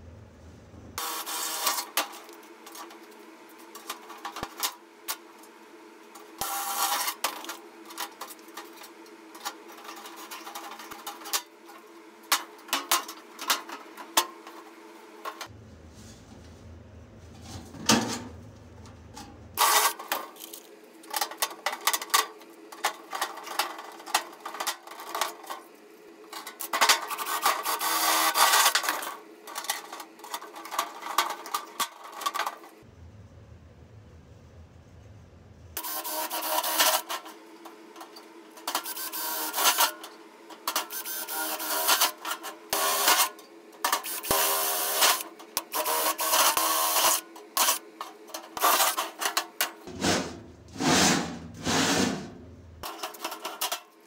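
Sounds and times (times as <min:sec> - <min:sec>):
sheet metal clattering and scraping: 0:17.2 - 0:19.4, 0:48.4 - 0:53.8
low hum: 0:32.8 - 0:35.8.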